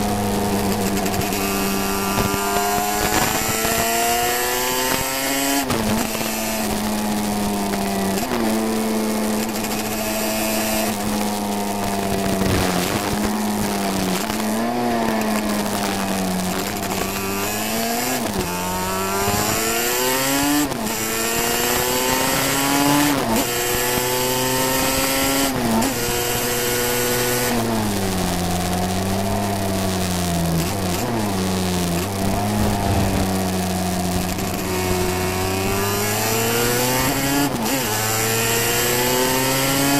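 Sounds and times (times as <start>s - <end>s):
racing motorcycle engine: 0.0s - 39.9s
wind noise: 27.5s - 38.0s
recording crackle: 27.8s - 35.0s.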